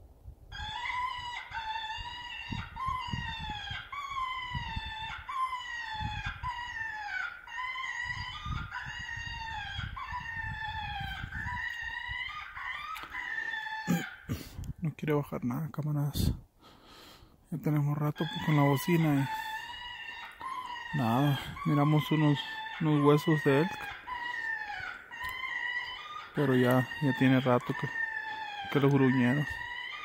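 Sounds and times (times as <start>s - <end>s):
electronic caller wailing cries: 18.0s - 30.0s.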